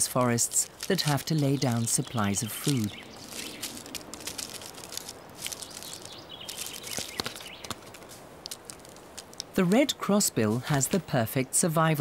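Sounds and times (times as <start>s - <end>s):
squirrel gnawing a cone: 0.0s - 9.6s.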